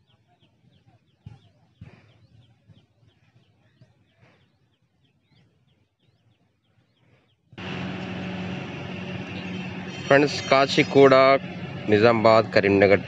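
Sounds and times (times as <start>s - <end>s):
faint bird chirps: 0.0s - 7.6s.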